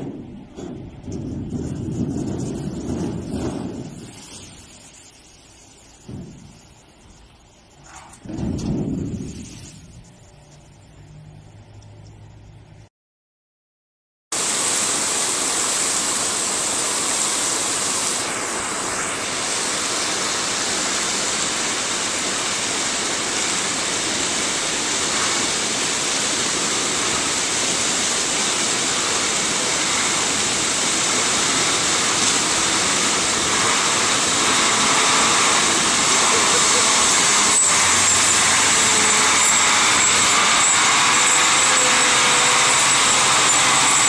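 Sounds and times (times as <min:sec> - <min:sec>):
floodwater rushing: 0:14.4 - 0:44.0.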